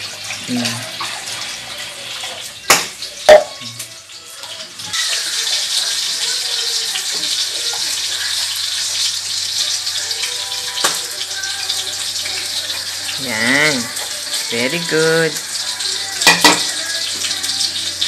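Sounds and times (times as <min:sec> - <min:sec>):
tap water running into sink: 0:00.0 - 0:18.0
dishes knocking against steel sink: 0:02.7 - 0:03.7.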